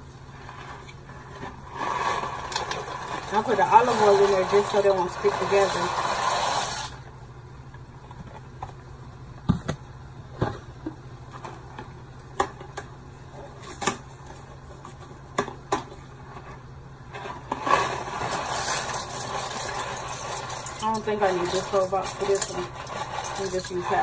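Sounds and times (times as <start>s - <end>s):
steady low hum: 0.0s - 24.0s
dry pasta rattling into a pot: 1.8s - 6.9s, 17.5s - 24.0s.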